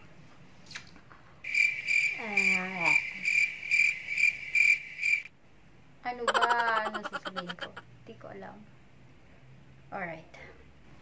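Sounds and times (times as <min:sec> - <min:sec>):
cricket chirping: 0:01.4 - 0:05.3.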